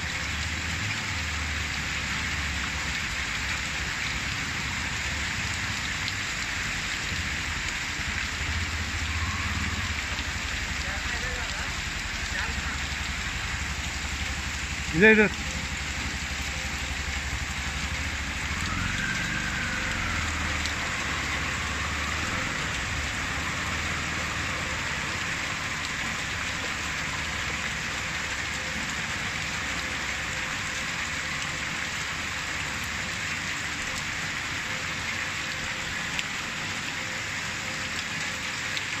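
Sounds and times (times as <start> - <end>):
heavy rain on standing water: 0.0 - 39.0.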